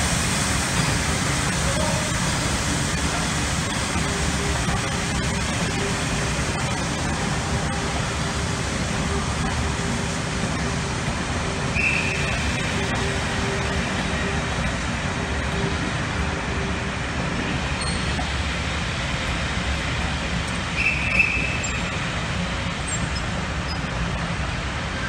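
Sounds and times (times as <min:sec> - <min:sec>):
train wheels rumbling on track: 0:00.0 - 0:25.0.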